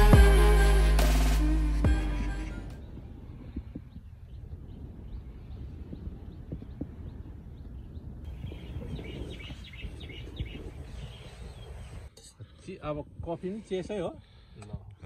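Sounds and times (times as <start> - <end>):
wind: 0.0 - 15.0
small birds chirping: 2.8 - 12.8.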